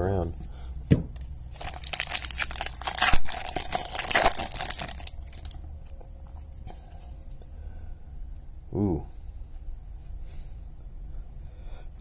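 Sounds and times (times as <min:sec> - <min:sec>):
foil wrapper tearing and crinkling: 0:01.5 - 0:05.6.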